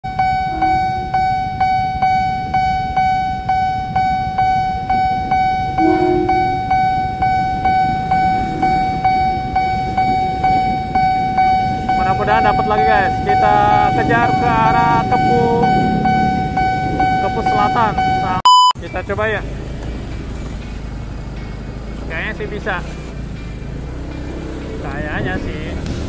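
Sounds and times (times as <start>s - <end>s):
level-crossing warning bell ringing: 0.0s - 18.8s
motorbikes idling: 0.1s - 26.0s
train passing rumble: 0.1s - 26.0s
short horn toot: 5.8s - 6.6s.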